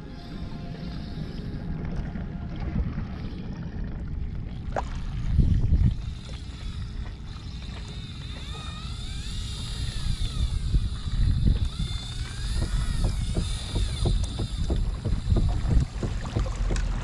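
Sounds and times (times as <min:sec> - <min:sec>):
faint wavering high squeals: 0:00.0 - 0:03.9, 0:05.8 - 0:15.7
water sloshing around boat: 0:00.0 - 0:17.0
wind buffeting microphone: 0:02.0 - 0:07.0, 0:09.0 - 0:17.0.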